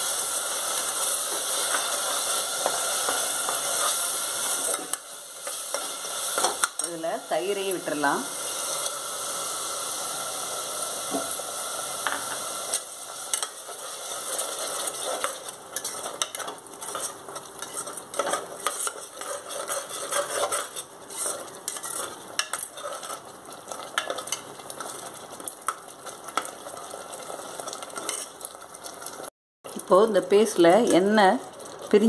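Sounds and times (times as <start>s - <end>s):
paste sizzling in hot ghee: 0.0s - 32.0s
spoon scraping and clicking on pot: 14.9s - 24.9s, 27.7s - 28.4s.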